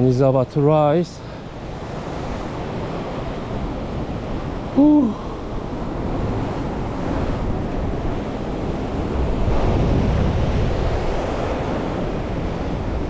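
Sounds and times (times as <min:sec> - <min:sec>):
ocean surf washing ashore: 0:00.0 - 0:13.0
wind buffeting microphone: 0:00.0 - 0:13.0.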